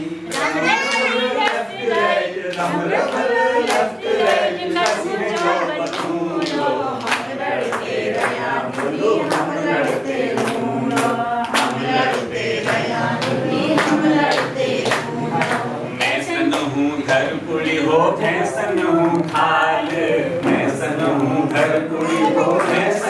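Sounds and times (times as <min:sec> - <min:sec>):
group singing folk song: 0:00.0 - 0:23.0
hands clapping a beat: 0:00.3 - 0:23.0.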